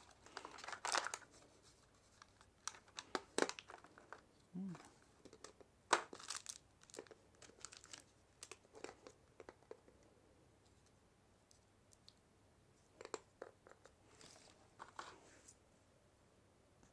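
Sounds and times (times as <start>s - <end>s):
plastic packaging crinkling: 0.0s - 4.2s, 5.4s - 9.5s.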